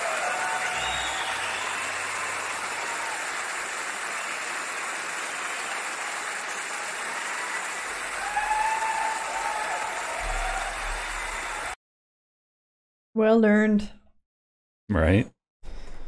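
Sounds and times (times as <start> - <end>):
audience applause: 0.0 - 11.8.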